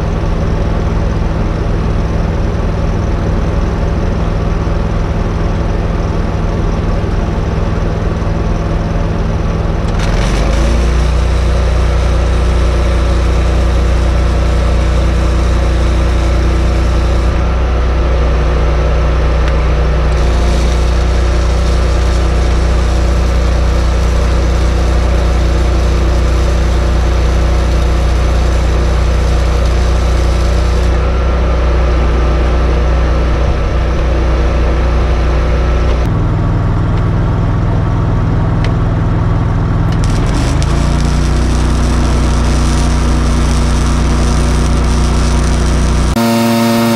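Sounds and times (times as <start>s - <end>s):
welding machine engine running: 0.0s - 46.9s
arc weld hissing and crackling: 4.8s - 17.4s, 19.6s - 31.0s, 39.8s - 46.9s.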